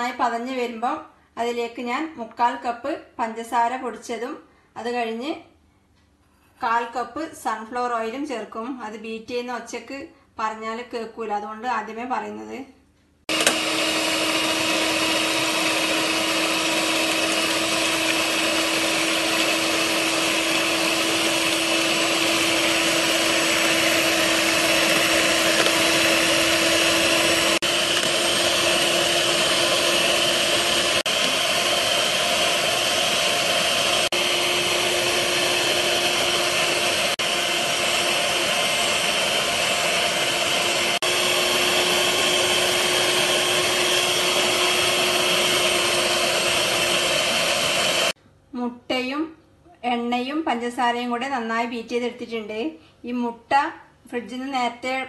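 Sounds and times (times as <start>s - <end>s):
electric hand mixer whisking: 13.3s - 48.2s.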